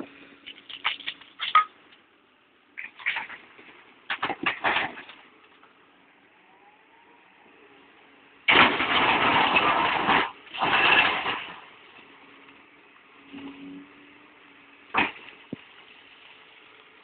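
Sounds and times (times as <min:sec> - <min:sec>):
excavator working: 0:00.0 - 0:17.0
bucket grinding and scraping rock: 0:08.5 - 0:11.7.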